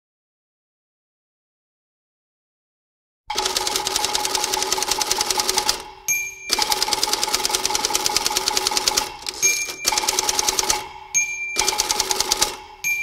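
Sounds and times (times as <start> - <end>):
typewriter typing: 3.3 - 5.9, 6.5 - 10.9, 11.6 - 12.6
typewriter bell ding: 3.3 - 13.0.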